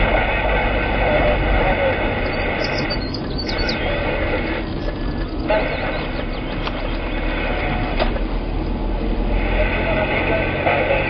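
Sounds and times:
vehicle road and wind noise: 0.0s - 11.0s
high bird chirps: 2.2s - 4.0s.

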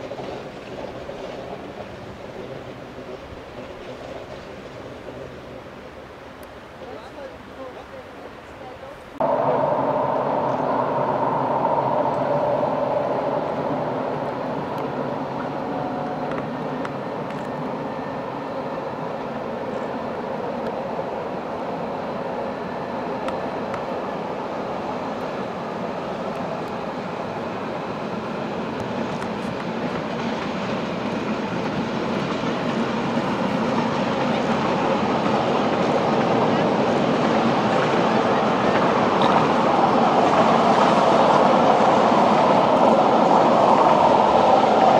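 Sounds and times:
train wheels rumbling on rails: 0.0s - 8.0s, 9.0s - 44.9s.

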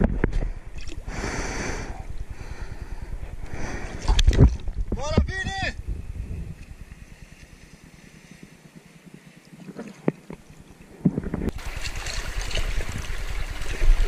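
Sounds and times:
small waves lapping: 8.2s - 14.0s
hand paddling water splashing: 9.5s - 10.4s, 11.5s - 14.0s.

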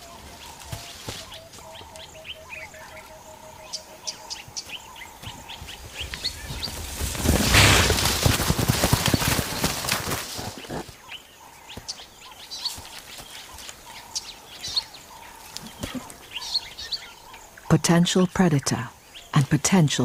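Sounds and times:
small birds chirping: 0.0s - 7.9s, 9.1s - 20.0s
animal crashing through brush: 6.5s - 10.8s
heavy thuds of charging animal: 7.2s - 8.2s.

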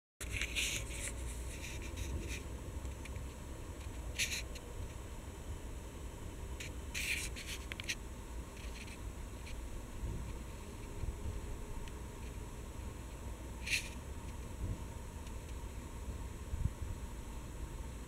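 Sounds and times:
scratching and rubbing: 0.2s - 2.5s, 4.1s - 4.6s, 6.6s - 8.0s, 8.6s - 9.6s, 13.6s - 14.0s
faint high whine: 0.2s - 18.0s.

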